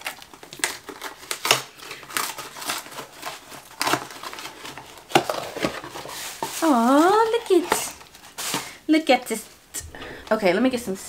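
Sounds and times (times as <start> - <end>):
plastic packaging crinkling: 0.0 - 8.8.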